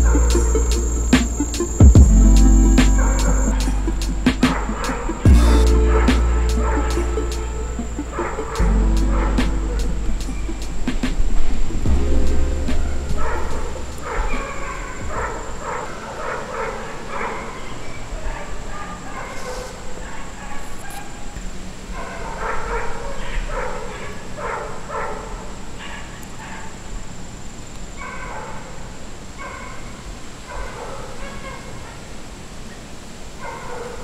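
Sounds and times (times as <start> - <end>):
dog barking: 4.4 - 9.9, 13.2 - 26.9, 28.0 - 32.2, 33.4 - 34.0.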